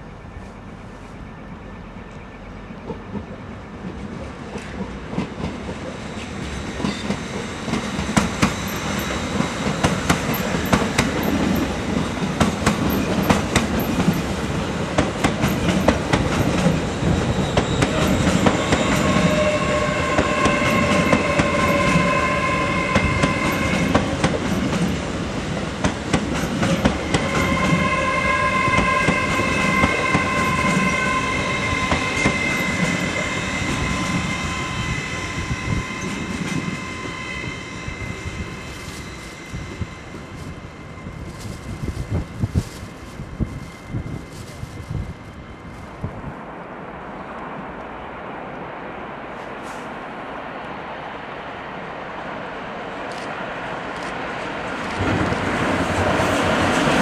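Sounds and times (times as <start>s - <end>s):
electric train running past: 0.0s - 57.0s
high-pitched squeal: 16.8s - 24.1s, 27.0s - 46.1s.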